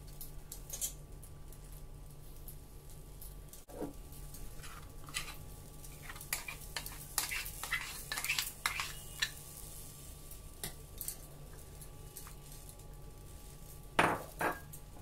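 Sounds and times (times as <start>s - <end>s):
spoon scraping and clinking on pan: 4.6s - 9.4s.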